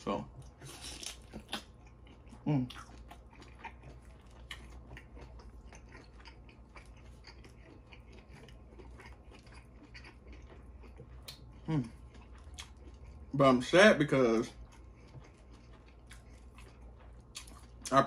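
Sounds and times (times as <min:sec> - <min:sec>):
chewing and lip-smacking: 0:00.0 - 0:18.0.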